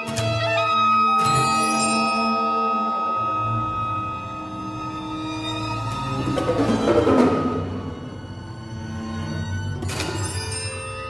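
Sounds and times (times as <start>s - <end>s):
chamber orchestra music: 0.0s - 11.0s.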